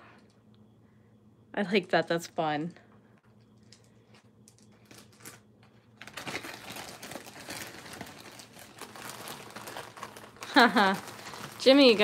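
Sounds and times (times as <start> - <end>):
plastic bag crinkling: 4.5 - 12.0.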